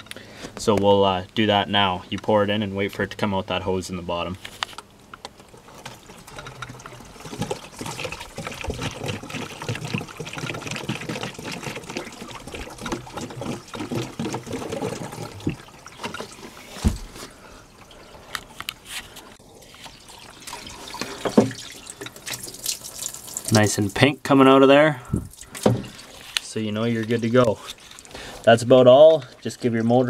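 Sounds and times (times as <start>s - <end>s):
liquid gurgling down a hose: 5.5s - 18.5s, 19.4s - 24.0s, 24.8s - 30.0s.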